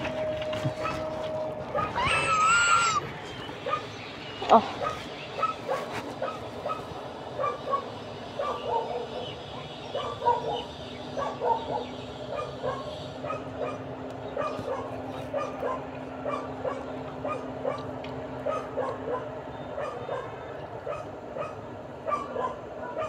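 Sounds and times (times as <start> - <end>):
dog whimpering and yipping: 1.7 - 3.0.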